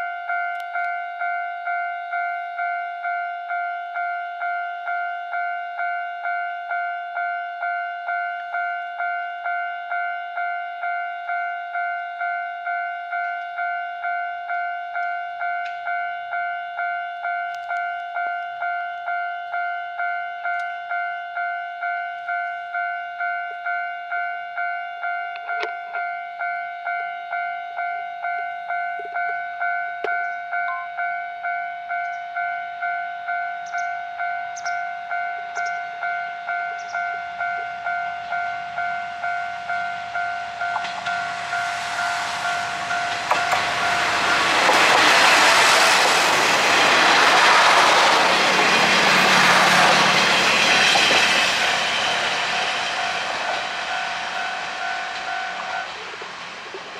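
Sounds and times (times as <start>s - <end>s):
level crossing alarm ringing: 0.0s - 56.9s
train passing: 33.7s - 56.9s.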